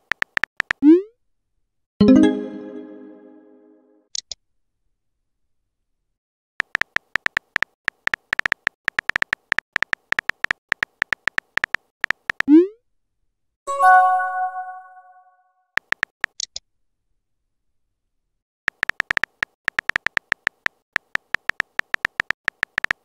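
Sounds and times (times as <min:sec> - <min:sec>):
chime: 0:02.0 - 0:03.8, 0:13.7 - 0:15.2
keyboard tapping clicks: 0:18.7 - 0:23.0.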